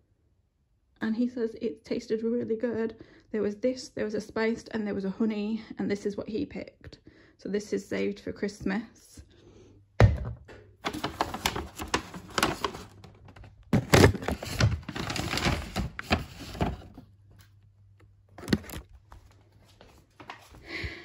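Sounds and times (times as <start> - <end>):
paper and cardboard rustling: 10.8 - 17.0, 18.4 - 19.3
boxes knocking: 13.7 - 16.9.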